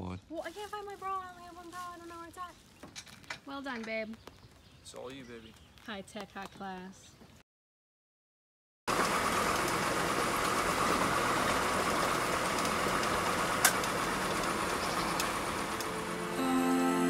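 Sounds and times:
car engine and tyre noise: 8.9 - 16.4.

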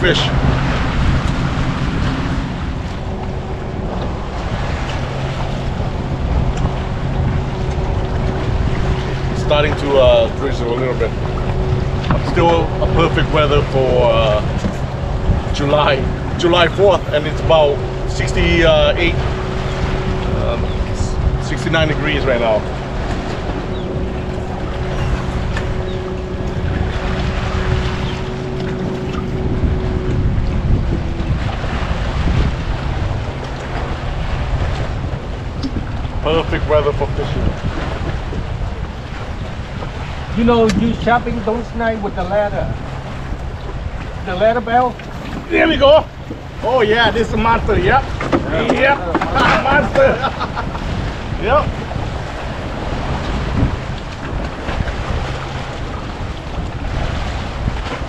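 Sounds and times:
outboard motor idling: 0.0 - 36.4
water noise: 0.0 - 58.0
wind buffeting microphone: 0.0 - 58.0.

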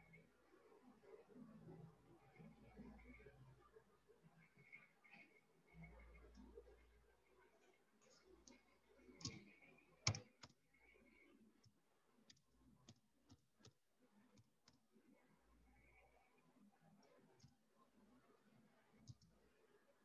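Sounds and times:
keyboard and mouse clicks: 8.4 - 10.6, 11.6 - 14.8, 19.0 - 19.3.

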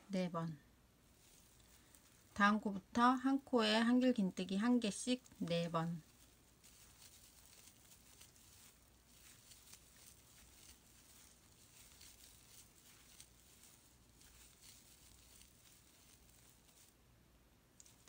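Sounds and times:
crochet hook rustling yarn: 0.0 - 18.0
low steady hum: 0.0 - 18.0.

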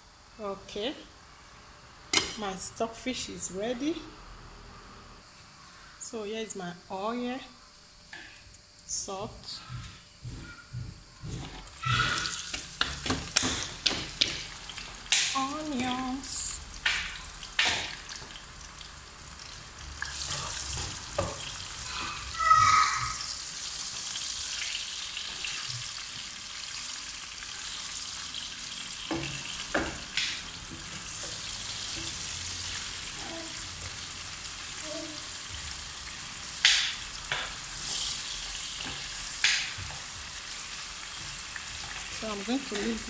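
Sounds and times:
onions sizzling in oil: 11.0 - 43.0.

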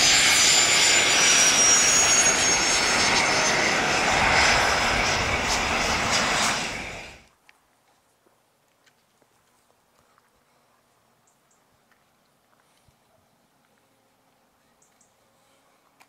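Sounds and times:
jet engine rush with whine: 0.0 - 7.3.

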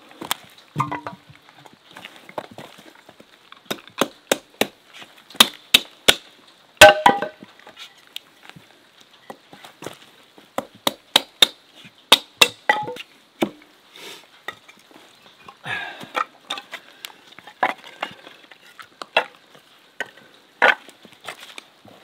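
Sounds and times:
sharp knocks and cracks: 3.6 - 7.4, 10.6 - 13.6.

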